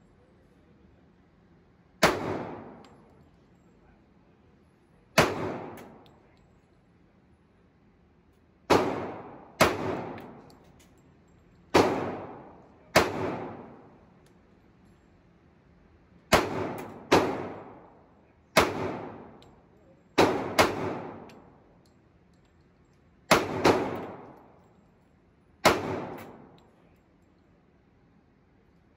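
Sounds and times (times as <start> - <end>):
pistol shots with echo: 2.0 - 3.1, 5.2 - 6.2, 8.7 - 10.6, 11.7 - 14.0, 16.3 - 19.6, 20.2 - 21.7, 23.3 - 24.6, 25.6 - 26.8.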